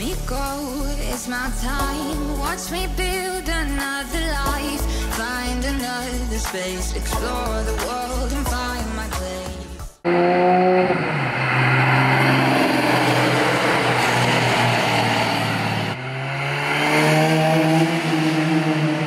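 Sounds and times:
second car engine accelerating: 10.1 - 19.0
sports car exhaust accelerating: 10.1 - 19.0.

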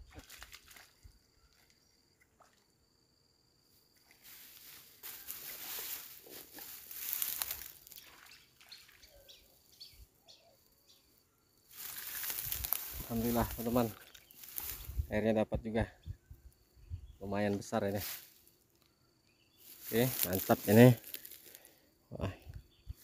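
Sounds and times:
bird chirps: 8.0 - 11.5
clothing rustling against microphone: 11.7 - 15.0.

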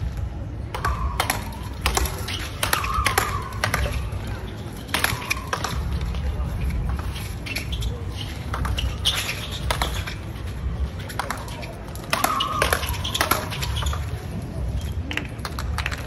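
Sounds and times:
racquets hitting ball: 0.7 - 14.4
sneakers squeaking on court: 1.2 - 15.0.

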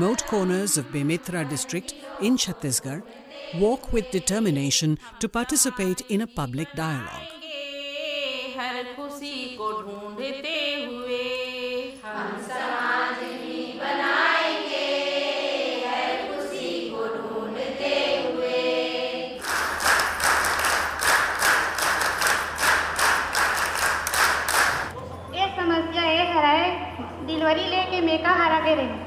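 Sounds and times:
group of voices singing: 0.0 - 8.6, 9.4 - 20.2
crowd clapping in rhythm: 19.4 - 24.9.

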